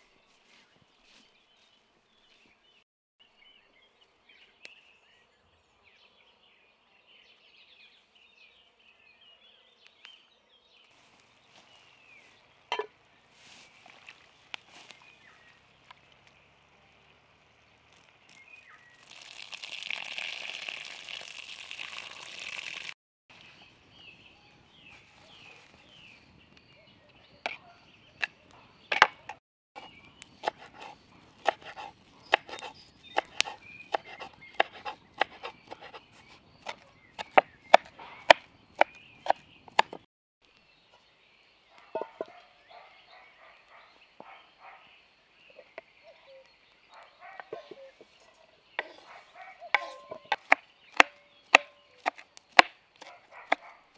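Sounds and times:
faint birdsong: 0.0 - 19.2, 23.3 - 53.9
knife chopping on wooden board: 28.9 - 40.0, 49.8 - 53.6.

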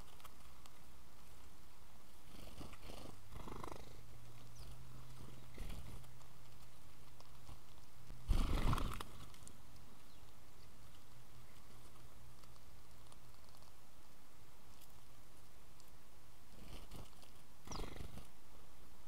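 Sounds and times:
birds pecking and rustling seed: 0.0 - 19.0
steady low hum: 0.0 - 19.0
flurry of bird wingbeats: 7.3 - 9.4.

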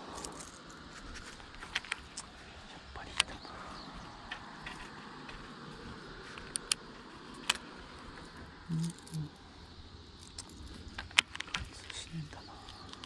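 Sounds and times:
steady outdoor hiss: 0.0 - 13.0
fishing tackle clicking and rattling: 10.1 - 13.0.

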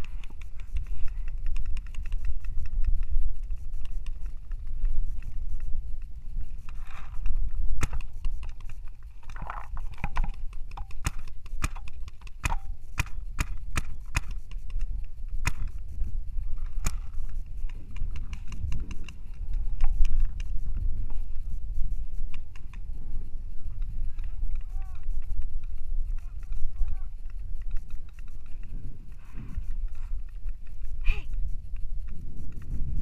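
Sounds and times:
paintball markers firing: 0.0 - 5.4, 6.6 - 9.0, 9.8 - 20.6, 23.7 - 28.7
wind rumble on microphone: 0.0 - 33.0.

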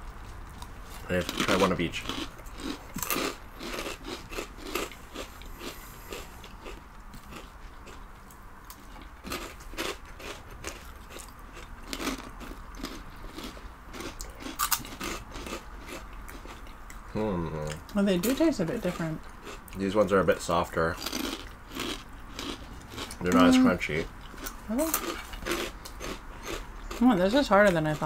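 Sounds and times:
people chewing crunchy snacks: 0.0 - 28.0.

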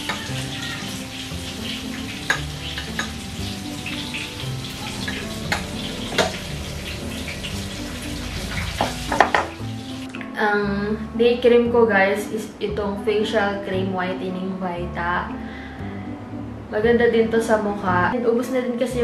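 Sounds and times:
oil sizzling in frying pan: 0.0 - 10.2.

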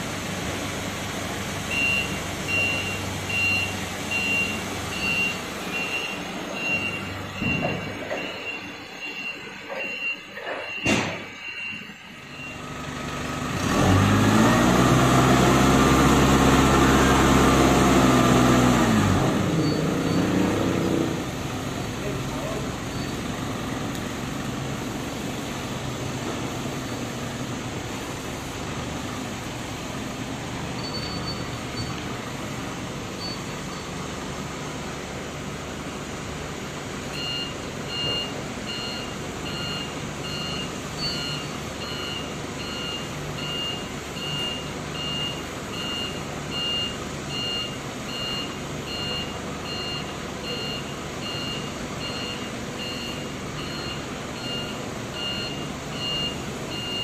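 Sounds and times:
forklift engine running: 0.0 - 57.0
reversing alarm beeping: 1.7 - 12.8, 22.4 - 23.2, 30.7 - 32.0, 33.1 - 34.0, 37.1 - 57.0.

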